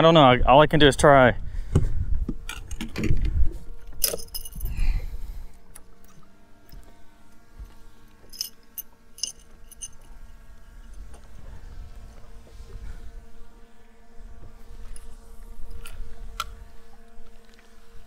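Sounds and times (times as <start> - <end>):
fishing gear clattering on boat deck: 2.4 - 5.0, 8.2 - 11.3
light metallic clinks: 4.0 - 4.8, 8.3 - 11.0.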